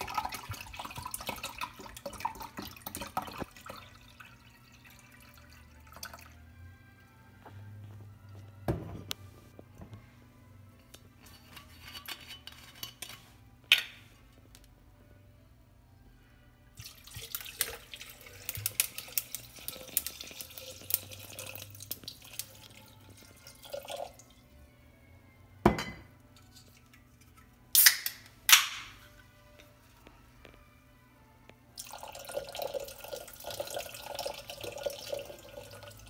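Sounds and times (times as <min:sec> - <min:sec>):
liquid pouring onto ice: 0:16.8 - 0:24.2, 0:31.8 - 0:36.0
glass clinking: 0:25.7 - 0:26.1.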